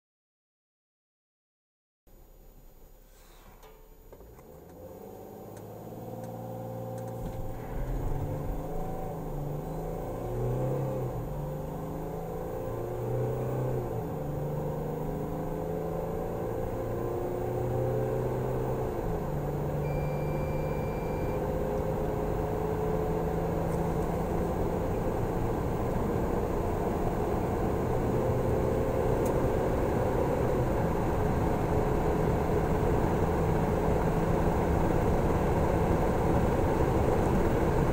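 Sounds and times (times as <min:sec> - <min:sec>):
diesel van accelerating hard: 0:04.7 - 0:37.9.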